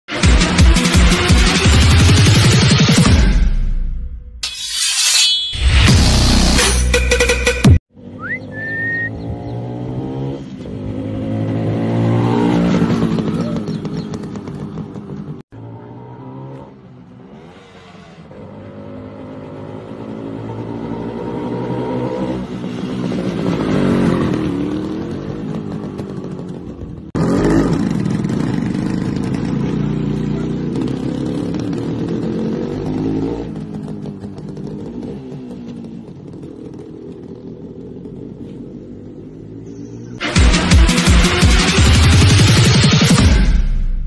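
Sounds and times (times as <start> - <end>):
motorcycle engine running: 9.1 - 15.4, 22.3 - 43.4.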